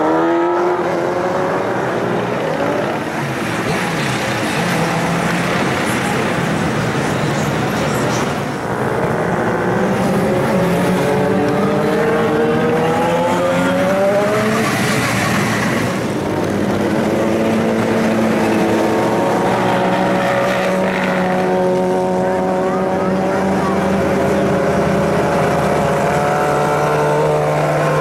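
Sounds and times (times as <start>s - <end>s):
motorcycle engine revving: 8.4s - 28.0s.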